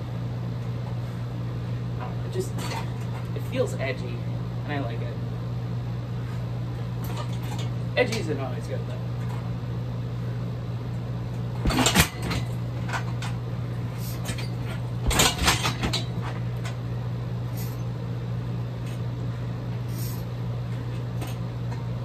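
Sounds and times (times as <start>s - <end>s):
low hum: 0.0s - 22.0s
kicks thudding on heavy bag: 11.6s - 12.7s, 14.1s - 16.2s.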